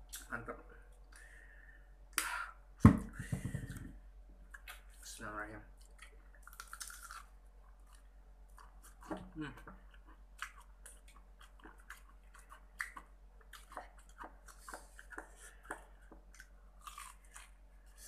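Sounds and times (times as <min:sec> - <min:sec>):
chewing crunches: 0:05.8 - 0:09.2, 0:09.8 - 0:18.0.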